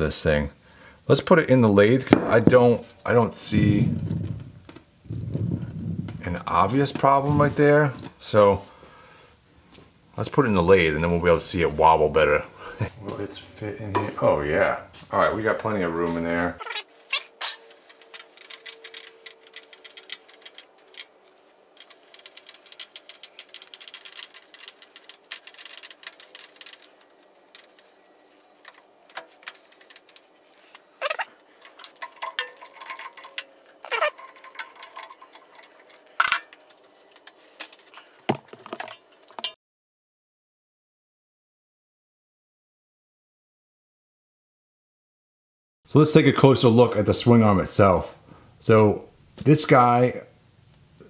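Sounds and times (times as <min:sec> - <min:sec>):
metal clicks and clanks on lathe: 0:31.6 - 0:36.6.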